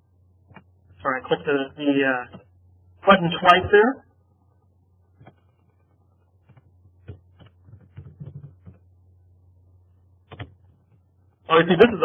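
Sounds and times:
low steady hum: 0:00.0 - 0:12.0
computer keyboard keystrokes: 0:10.3 - 0:10.6.

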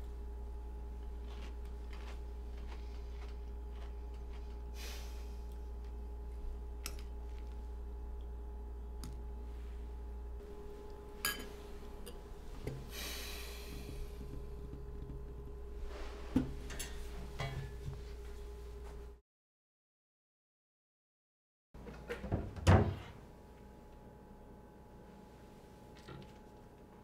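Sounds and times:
low electrical hum: 0:00.0 - 0:19.2, 0:21.8 - 0:27.0
spoon clinking on ceramic bowl: 0:11.2 - 0:12.2.

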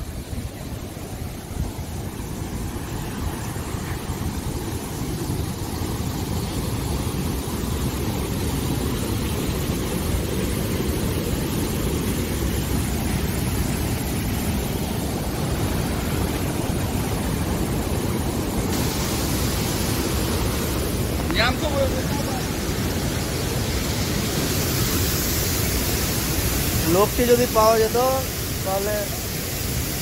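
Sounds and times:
floodwater rushing down a hillside: 0:00.0 - 0:30.0.

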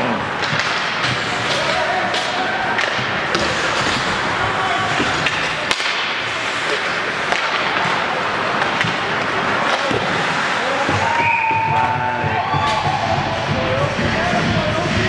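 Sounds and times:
skate blades on ice: 0:00.0 - 0:12.0
hockey sticks and puck clacking: 0:00.0 - 0:13.1
crowd noise: 0:00.0 - 0:15.0.

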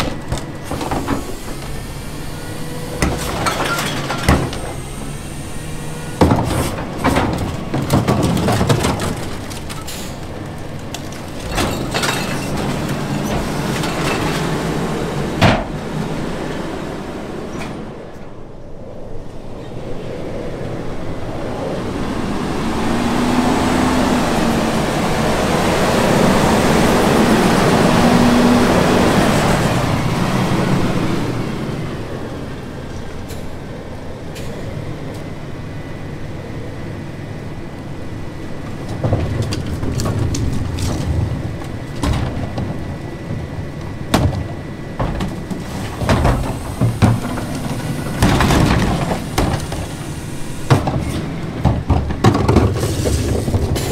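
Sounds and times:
knocks and clunks: 0:06.2 - 0:10.1, 0:15.4 - 0:15.8, 0:38.6 - 0:50.0, 0:50.7 - 0:53.9
garbage truck engine revving: 0:21.8 - 0:32.7, 0:38.0 - 0:53.9.

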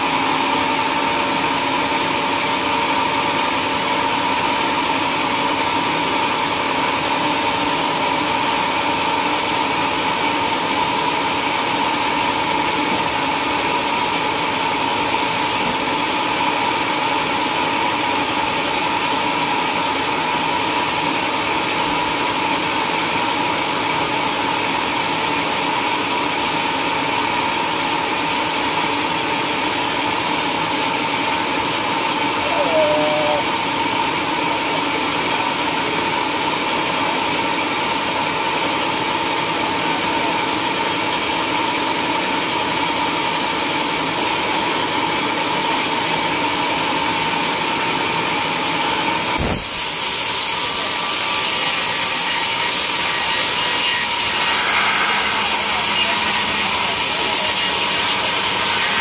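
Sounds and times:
band sawmill cutting log: 0:48.0 - 0:59.0.

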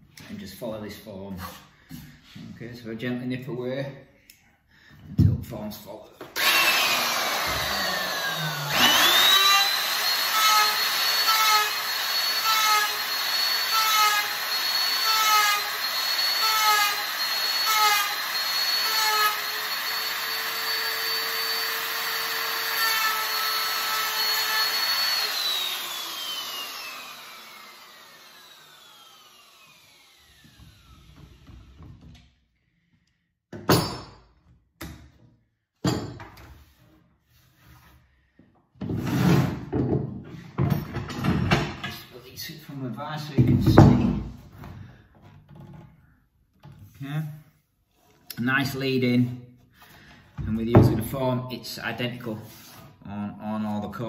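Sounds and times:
router cutting wood: 0:06.3 - 0:31.8
electric router whining: 0:06.4 - 0:31.5.

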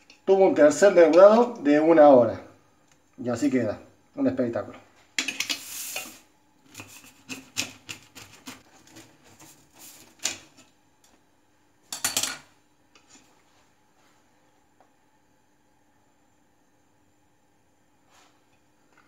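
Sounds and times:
scrape on stone countertop: 0:05.4 - 0:07.4.

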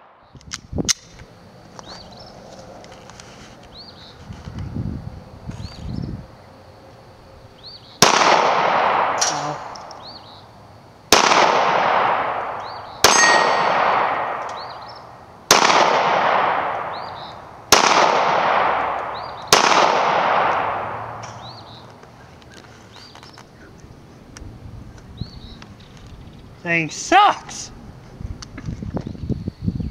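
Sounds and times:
pistol shots with echo: 0:08.0 - 0:10.2, 0:11.1 - 0:21.8.

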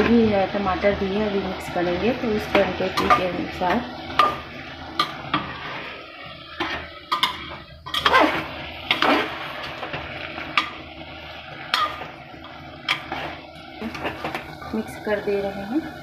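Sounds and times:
metal ladle scraping a pot: 0:06.6 - 0:10.7, 0:11.7 - 0:14.4.

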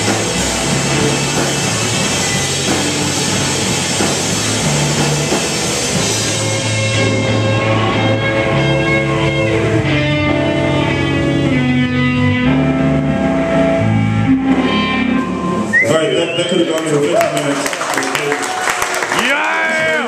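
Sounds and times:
live rock band playing: 0:00.0 - 0:20.0
held guitar notes ringing: 0:05.6 - 0:16.8.

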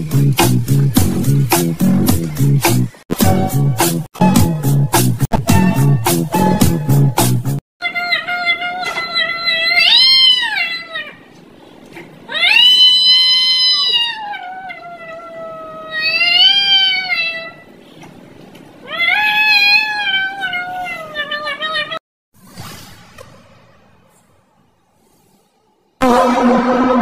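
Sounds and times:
cat yowling: 0:07.8 - 0:11.3, 0:12.3 - 0:17.7, 0:18.8 - 0:22.0.

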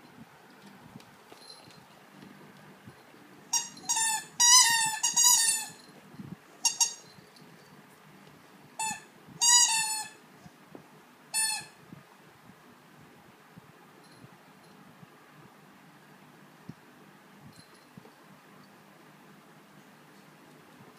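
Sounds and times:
squeaky dog toy squeaking: 0:03.5 - 0:05.9, 0:06.6 - 0:07.1, 0:08.8 - 0:10.2, 0:11.3 - 0:11.8.

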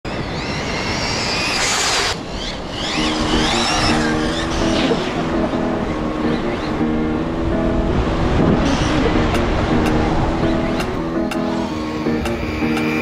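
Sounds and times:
electric motor high-pitched whine: 0:00.1 - 0:05.3, 0:11.5 - 0:13.0
background music with low notes: 0:03.0 - 0:13.0.

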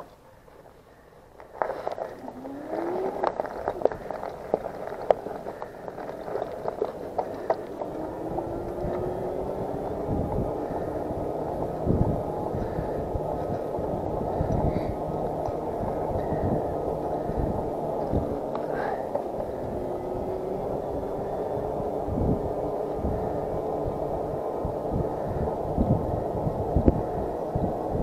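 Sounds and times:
e-bike rolling and rumbling: 0:00.0 - 0:28.0
sharp clicks and rattles: 0:01.4 - 0:24.2
faint whine rising in pitch: 0:01.9 - 0:28.0.

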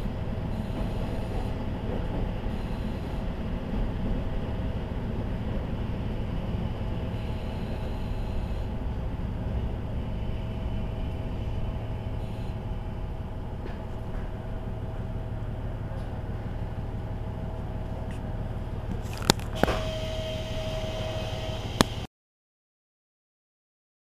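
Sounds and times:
diesel railcar rumbling on rails: 0:00.0 - 0:22.1.

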